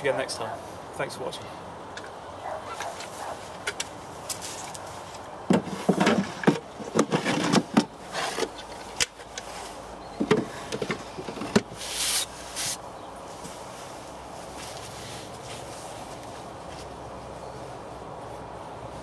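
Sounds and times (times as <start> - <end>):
wooden drawers sliding: 5.5 - 8.6.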